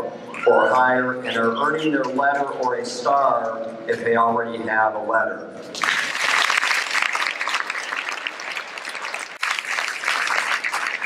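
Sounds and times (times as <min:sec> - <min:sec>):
audience applauding: 0:05.8 - 0:11.0.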